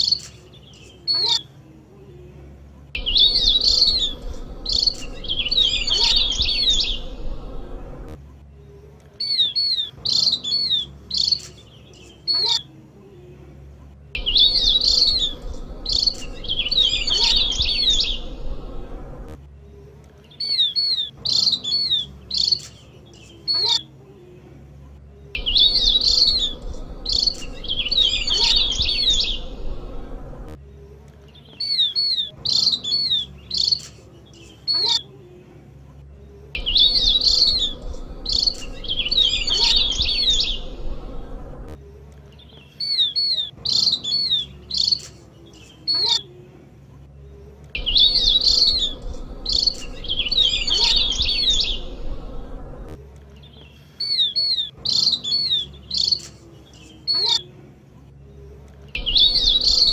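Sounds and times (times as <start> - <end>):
bird chirping and chattering: 3.0 - 7.2, 14.2 - 18.4, 25.4 - 29.6, 36.6 - 40.8, 47.8 - 52.0, 59.0 - 59.9.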